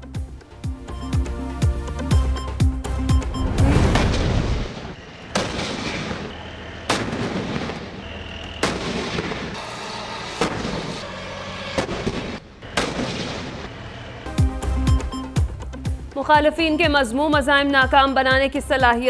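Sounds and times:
tank guns firing: 0:04.8 - 0:09.6, 0:11.8 - 0:14.0.

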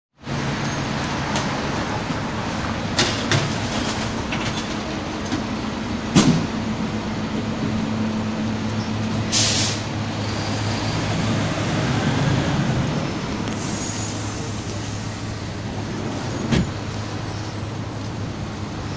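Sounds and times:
garbage truck engine hum: 0:00.3 - 0:18.9
short hiss: 0:09.3 - 0:09.9, 0:13.6 - 0:14.7.

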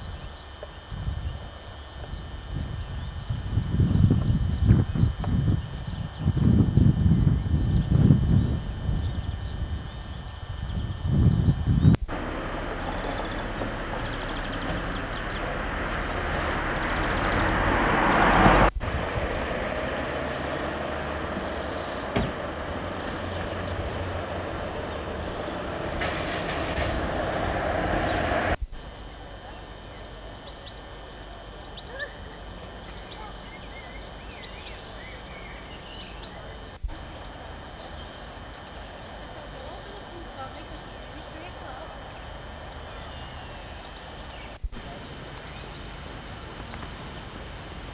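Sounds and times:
birds chirping: 0:00.0 - 0:47.9
road traffic passing: 0:12.0 - 0:47.9.

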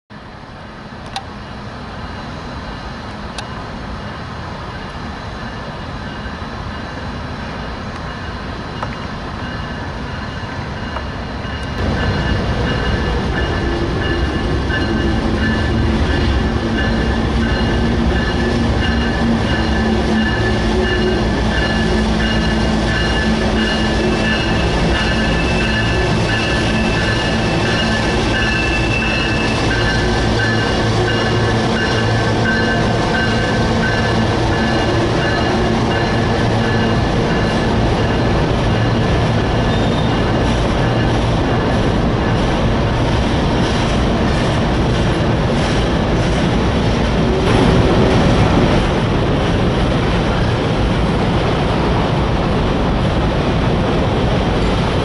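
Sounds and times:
freight train rumble: 0:00.1 - 0:55.0
high squealing tones: 0:11.8 - 0:37.0.

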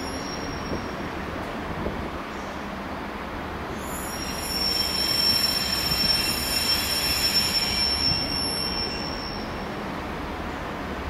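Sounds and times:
train wheels squealing: 0:00.0 - 0:01.2, 0:03.7 - 0:09.9.

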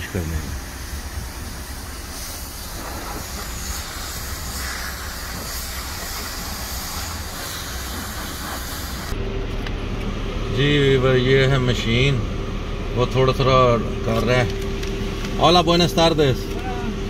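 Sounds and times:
pressure washer spraying water: 0:00.0 - 0:09.2.

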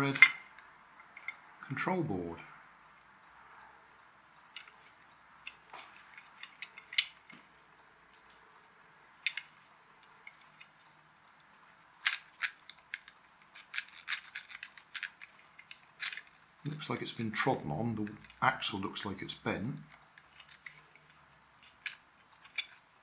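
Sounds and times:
plastic toy parts clicking: 0:00.0 - 0:01.4, 0:04.5 - 0:07.4, 0:09.2 - 0:18.5, 0:19.7 - 0:23.0.

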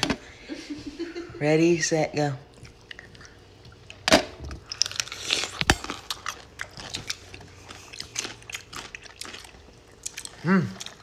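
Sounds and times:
pickle crunching and chewing: 0:04.6 - 0:11.0.

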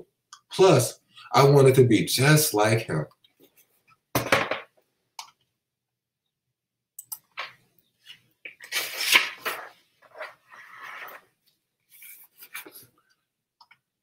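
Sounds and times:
book pages rustling: 0:07.4 - 0:13.0.

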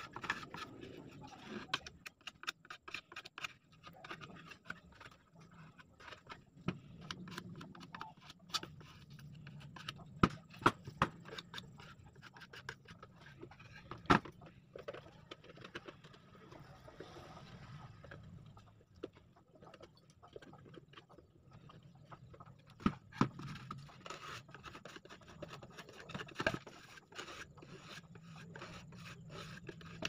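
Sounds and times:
wood scraping and rubbing: 0:00.0 - 0:17.9, 0:19.1 - 0:30.0.

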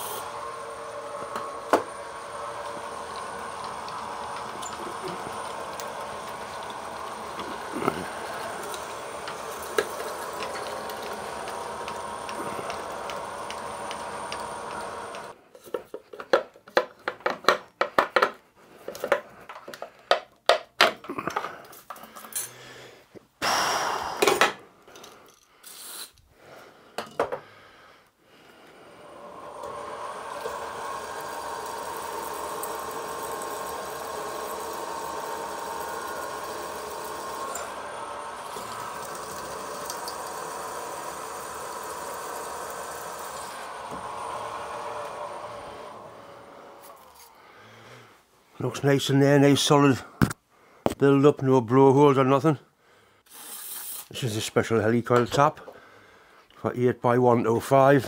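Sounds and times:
drilling machine boring into metal: 0:00.0 - 0:15.4, 0:28.9 - 0:47.3.

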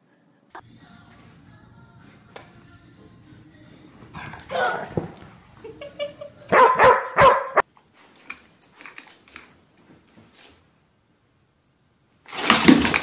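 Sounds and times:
dog barking: 0:04.2 - 0:05.2, 0:06.5 - 0:07.6.

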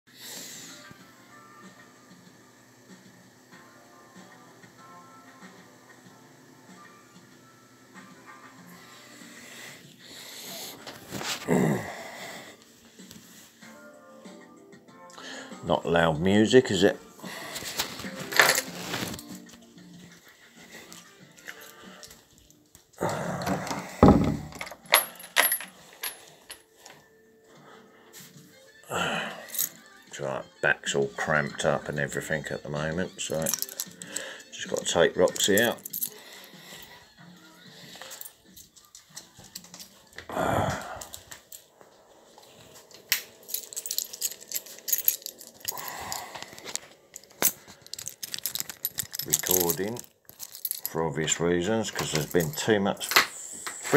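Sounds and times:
small metal objects jingling: 0:23.5 - 0:26.7, 0:33.2 - 0:36.9, 0:43.4 - 0:51.0, 0:51.9 - 0:53.2
sharp clicks and rattles: 0:46.5 - 0:50.9.

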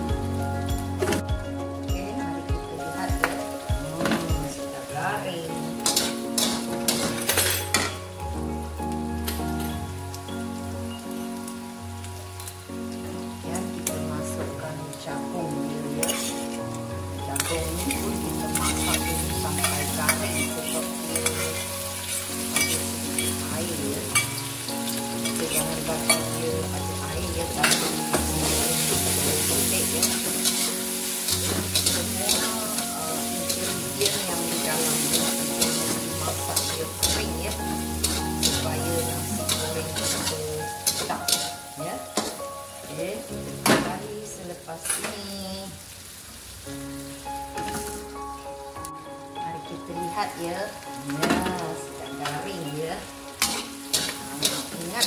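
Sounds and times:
food sizzling in a wok: 0:00.0 - 0:55.0
metal spatula scraping a pan: 0:05.8 - 0:08.0, 0:16.0 - 0:16.6, 0:17.4 - 0:26.4, 0:27.6 - 0:32.6, 0:33.4 - 0:42.4, 0:53.4 - 0:55.0.

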